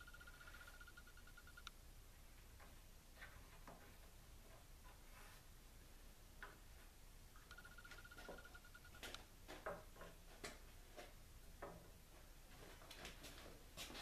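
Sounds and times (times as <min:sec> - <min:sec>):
faint pulsing high tone: 0:00.0 - 0:01.7, 0:07.4 - 0:09.2.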